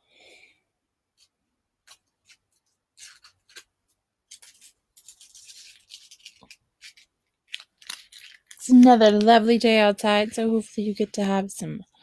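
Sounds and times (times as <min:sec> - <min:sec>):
rustling: 0:04.3 - 0:08.7.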